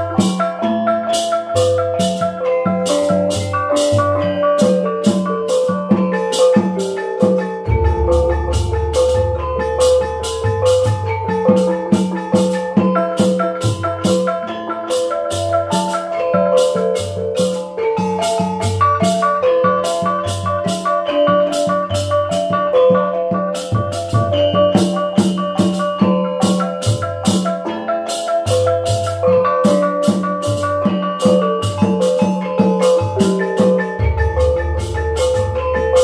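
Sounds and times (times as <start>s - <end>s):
drum: 0.0s - 36.0s
sharp rhythmic strikes: 0.0s - 36.0s
deep gong stroke: 7.7s - 10.0s.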